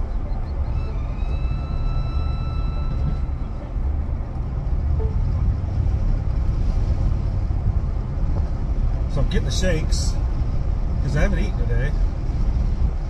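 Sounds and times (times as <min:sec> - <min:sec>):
engine and tyre rumble in truck cab: 0:00.0 - 0:13.0.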